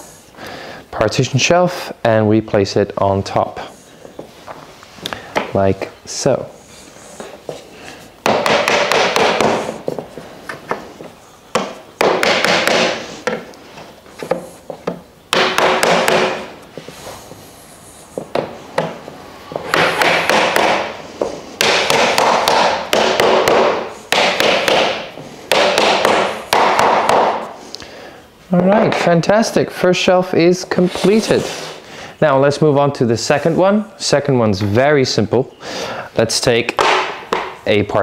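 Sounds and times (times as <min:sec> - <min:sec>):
mallet tapping wood: 0:08.2 - 0:10.0, 0:11.5 - 0:13.4, 0:14.2 - 0:16.5, 0:18.2 - 0:27.4, 0:36.7 - 0:37.6.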